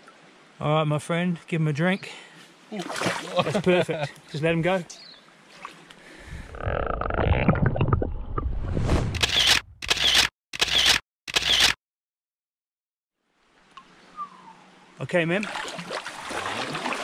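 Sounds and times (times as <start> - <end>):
stream water sloshing and splashing: 0.0 - 0.6, 2.4 - 4.3, 5.2 - 6.3, 15.2 - 17.0
camera shutter clicks: 9.2 - 11.8.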